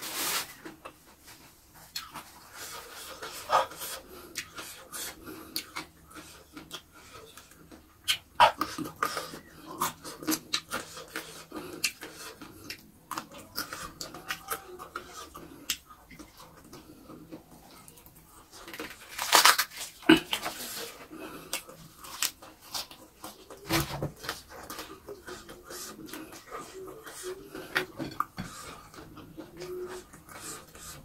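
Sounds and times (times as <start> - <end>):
person chewing with lip smacks: 1.7 - 23.6.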